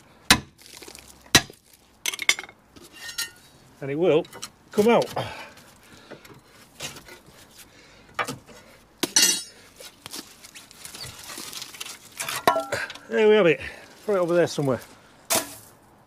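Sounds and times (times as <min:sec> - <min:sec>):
steel tools clinking and clanking: 0:02.1 - 0:03.4, 0:09.2 - 0:09.6, 0:12.2 - 0:13.0
ringing metal clanks: 0:09.2 - 0:09.6.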